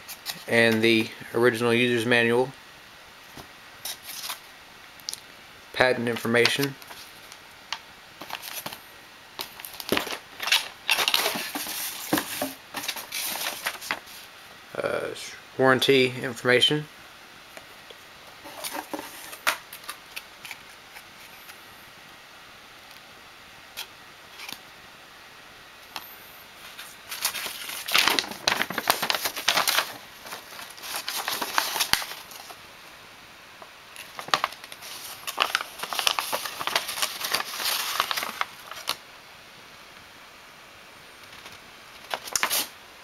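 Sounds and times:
paper rustling and crinkling: 0.0s - 1.1s, 3.3s - 4.5s, 6.0s - 7.4s, 8.2s - 8.8s, 9.4s - 14.3s, 18.4s - 21.6s, 26.6s - 32.6s, 33.9s - 39.0s, 41.3s - 42.7s.

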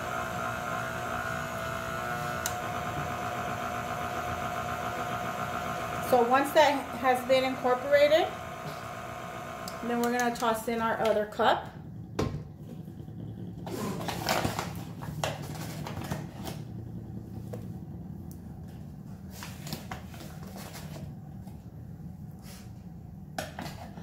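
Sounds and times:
steady low hum: 5.9s - 23.3s.

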